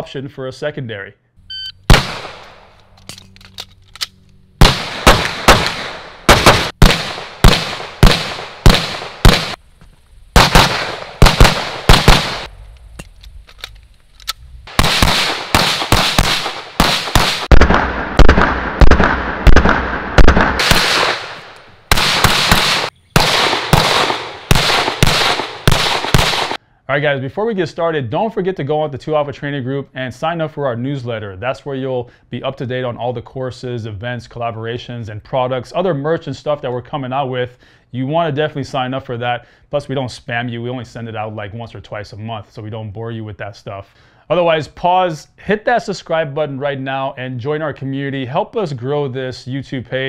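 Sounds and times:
rapid pistol shots: 0:01.9 - 0:02.8, 0:04.6 - 0:09.6, 0:10.4 - 0:12.5, 0:14.7 - 0:26.6.

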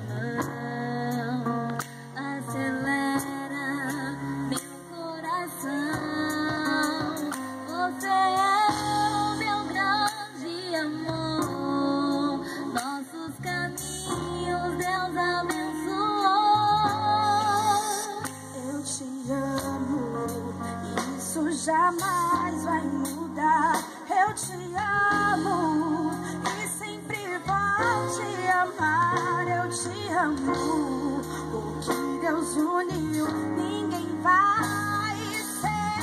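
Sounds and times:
live band playing slow love song: 0:00.0 - 0:36.0
woman singing: 0:00.0 - 0:36.0.

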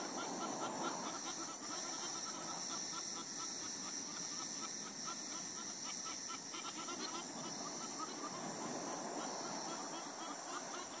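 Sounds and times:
short repeated animal calls: 0:00.0 - 0:08.5
rustling hiss: 0:00.0 - 0:11.0.

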